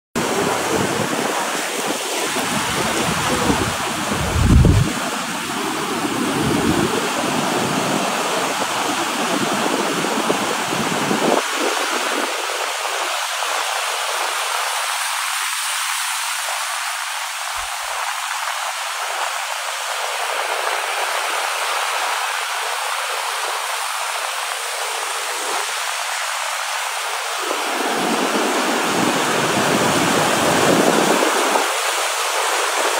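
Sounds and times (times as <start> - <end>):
surf breaking: 0.2 - 12.4.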